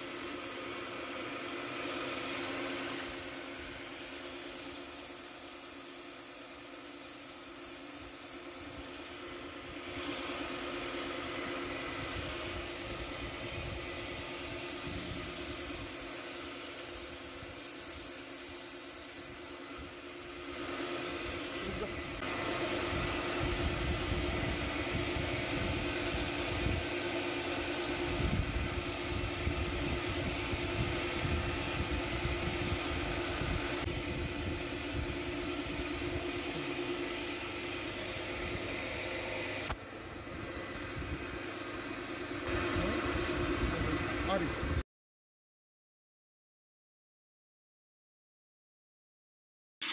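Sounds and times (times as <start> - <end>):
rubbing hiss on spinning wood: 2.8 - 8.8, 9.9 - 10.3, 14.6 - 19.4.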